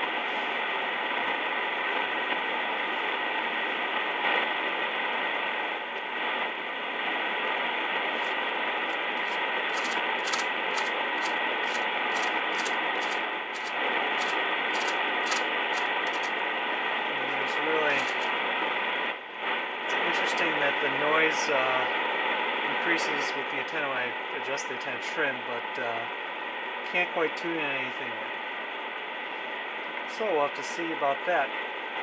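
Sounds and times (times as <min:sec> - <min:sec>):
radio receiver hiss: 0:00.0 - 0:21.8.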